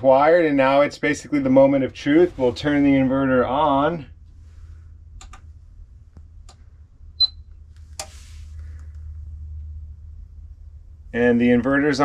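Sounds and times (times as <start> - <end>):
low hum: 0.0 - 12.0
switch clicks: 5.2 - 5.4
short high beep: 7.2 - 7.4.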